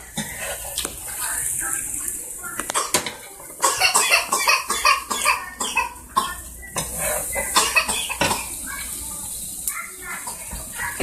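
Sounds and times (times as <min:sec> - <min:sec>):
metal spoon scraping in pot: 0:06.8 - 0:07.6.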